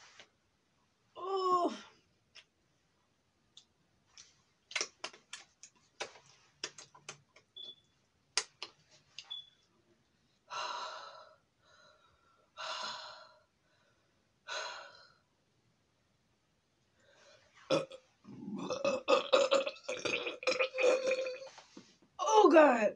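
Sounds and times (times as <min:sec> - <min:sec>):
wet mouth chewing clicks: 0:04.7 - 0:07.2.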